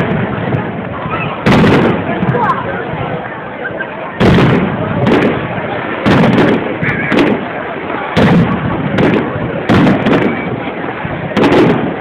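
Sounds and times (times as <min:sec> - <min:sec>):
background noise: 0:00.0 - 0:12.0
firework shells bursting: 0:01.4 - 0:02.3, 0:04.2 - 0:10.6, 0:11.3 - 0:12.0.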